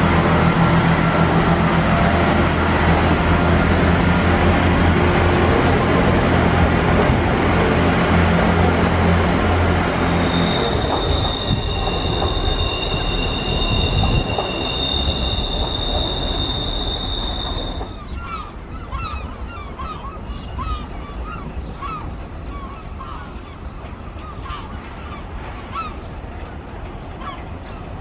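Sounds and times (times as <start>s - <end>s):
train running rumble: 0.0s - 19.9s, 20.6s - 28.0s
train wheels squealing: 9.2s - 18.5s.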